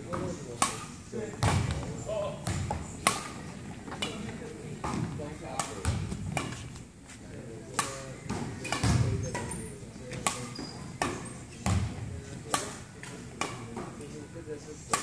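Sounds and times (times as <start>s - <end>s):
rackets striking shuttlecock: 0.1s - 1.8s, 2.4s - 4.2s, 4.8s - 6.8s, 7.7s - 11.8s, 12.4s - 14.1s.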